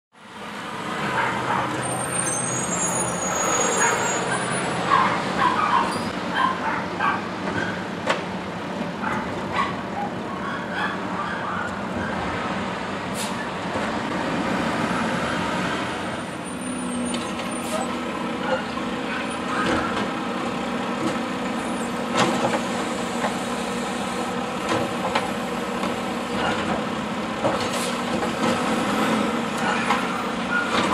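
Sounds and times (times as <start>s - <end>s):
truck diesel engine running: 13.9s - 30.9s.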